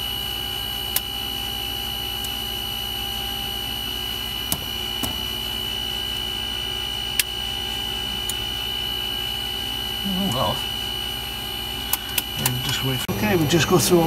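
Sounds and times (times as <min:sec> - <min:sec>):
electrical whine and hum: 0:00.0 - 0:14.0.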